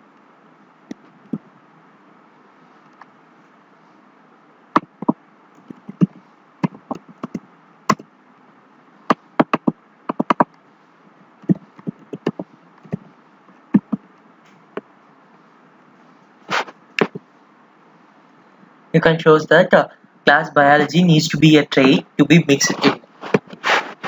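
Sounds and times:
computer keyboard keys clicking: 9.4s - 10.5s.

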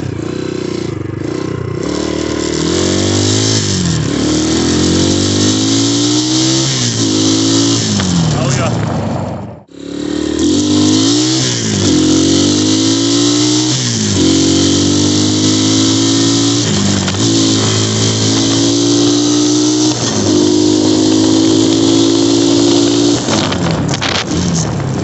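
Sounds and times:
dirt bike engine accelerating: 0.0s - 25.0s
wind rush on microphone: 23.0s - 25.0s.

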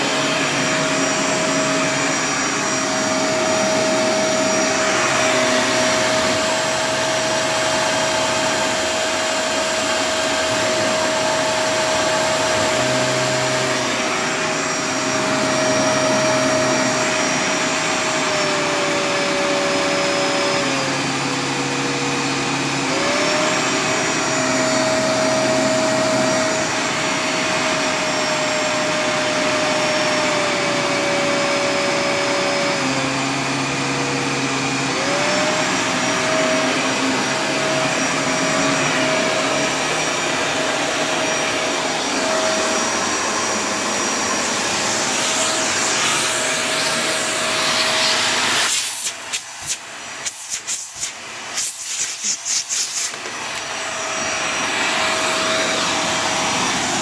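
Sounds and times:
vacuum cleaner motor whine: 0.0s - 57.0s.

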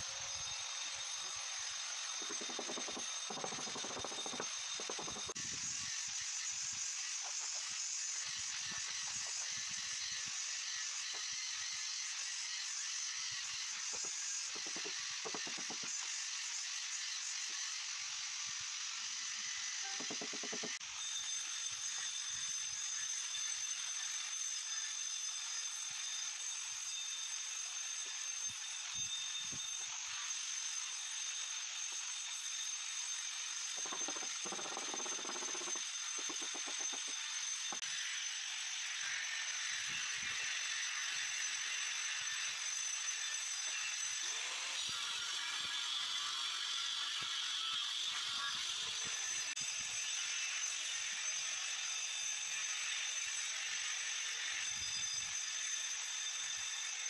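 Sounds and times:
trowel scraping and tapping mortar: 2.2s - 5.4s, 33.8s - 37.8s.

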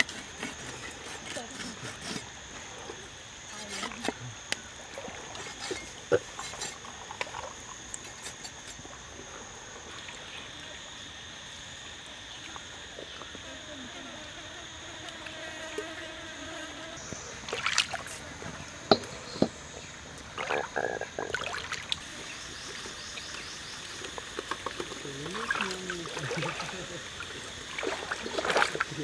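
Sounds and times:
feet wading through water: 17.4s - 18.5s, 20.2s - 23.0s, 24.7s - 29.0s
water splashing: 17.4s - 19.2s, 20.2s - 29.0s.

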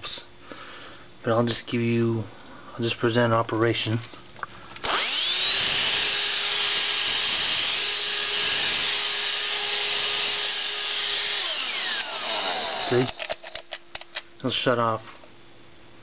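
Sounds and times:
hand vacuum motor whine: 4.8s - 13.3s.

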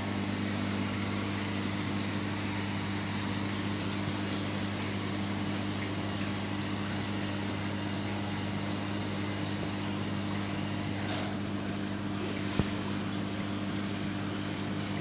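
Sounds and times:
aquarium equipment humming: 0.0s - 15.0s.

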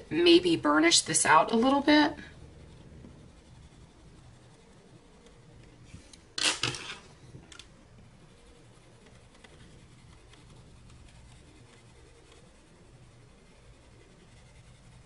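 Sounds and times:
colored pencil scratching on paper: 0.0s - 6.1s, 8.0s - 15.0s.

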